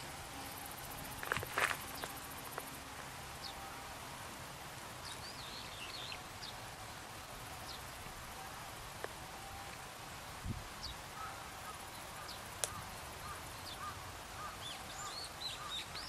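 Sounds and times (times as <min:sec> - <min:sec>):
background hiss: 0:00.0 - 0:16.0
faint clicks: 0:12.6 - 0:12.8.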